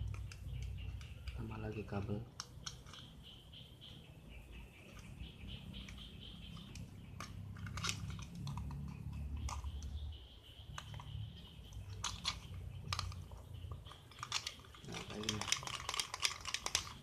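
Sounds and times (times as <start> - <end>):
tape and scissors clicking: 2.3 - 3.1, 11.9 - 17.0.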